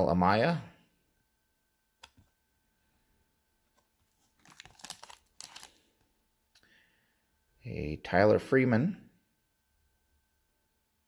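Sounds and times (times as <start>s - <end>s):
foil wrapper crinkling: 3.7s - 6.0s.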